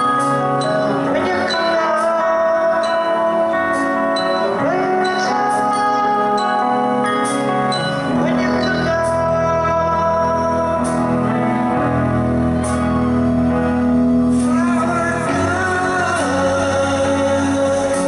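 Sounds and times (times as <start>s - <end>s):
person singing: 0.0s - 11.9s, 14.3s - 18.0s
keyboard chords: 0.0s - 18.0s
rock band playing: 0.0s - 18.0s.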